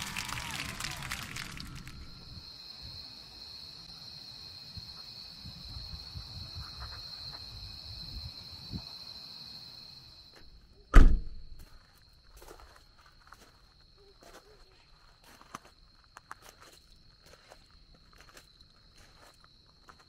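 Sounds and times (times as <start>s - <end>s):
night insects trilling: 0.0s - 10.9s
car door shutting: 11.0s - 11.4s.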